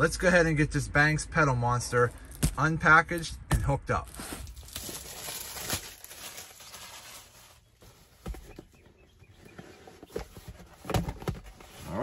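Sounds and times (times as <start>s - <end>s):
packaging rustling: 4.1s - 8.5s.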